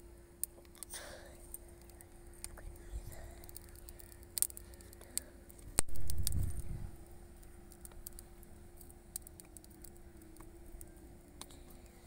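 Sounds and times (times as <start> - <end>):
wood fire crackling: 0.0 - 12.0
low rumble: 1.6 - 8.8.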